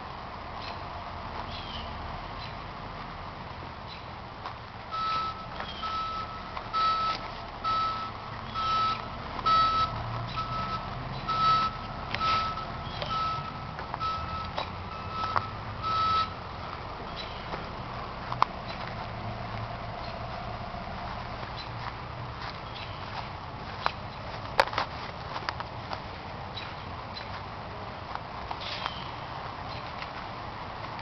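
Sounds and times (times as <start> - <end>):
footsteps crunching on forest floor: 2.9 - 31.0
distant reversing alarm beeping: 4.9 - 16.5.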